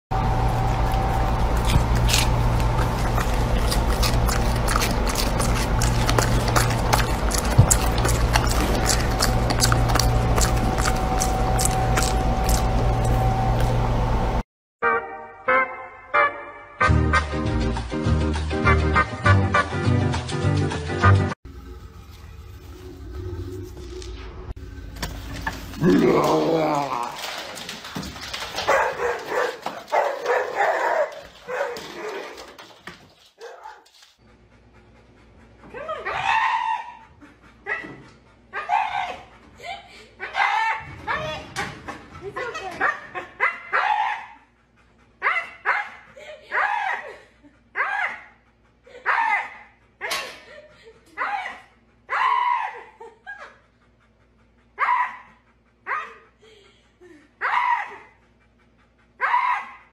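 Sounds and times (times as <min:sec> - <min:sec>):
dog whining barks: 0:28.7 - 0:32.4, 0:37.7 - 0:39.3, 0:42.8 - 0:44.4, 0:45.2 - 0:47.0, 0:47.8 - 0:48.4, 0:49.0 - 0:50.4, 0:51.2 - 0:53.0, 0:54.8 - 0:56.3, 0:57.4 - 0:58.2, 0:59.2 - 0:59.9
dog whining and howling: 0:35.8 - 0:37.9, 0:38.5 - 0:39.3, 0:51.2 - 0:53.1, 0:57.4 - 0:58.2, 0:59.2 - 0:59.9.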